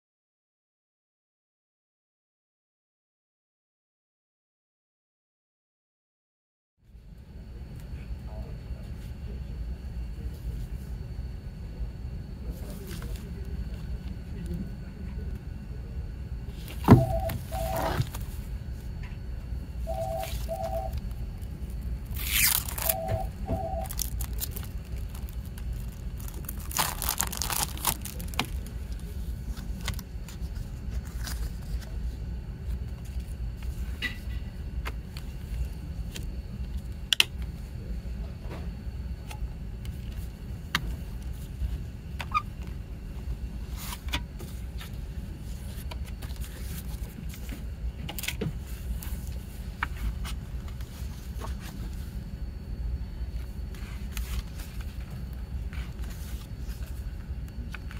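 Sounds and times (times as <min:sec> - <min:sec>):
cellophane ripping and crinkling: 0:20.9 - 0:23.0, 0:23.8 - 0:29.1.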